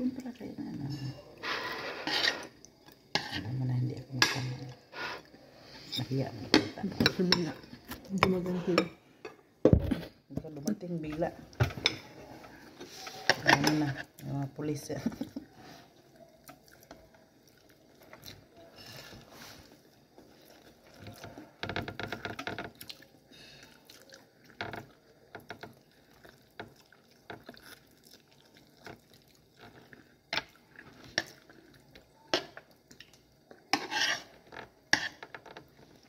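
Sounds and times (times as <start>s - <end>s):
person chewing: 22.6s - 32.0s.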